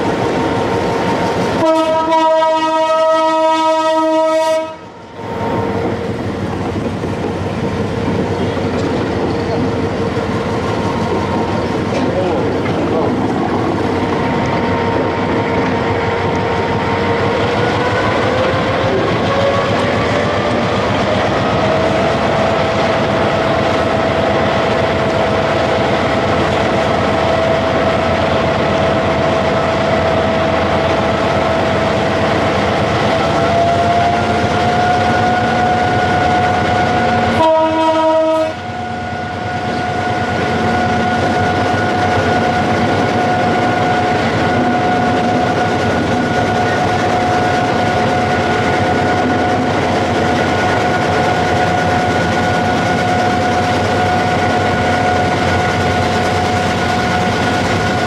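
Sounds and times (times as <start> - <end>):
diesel locomotive engine whine: 0.0 - 58.0
train horn blast: 1.6 - 5.0, 33.6 - 41.2.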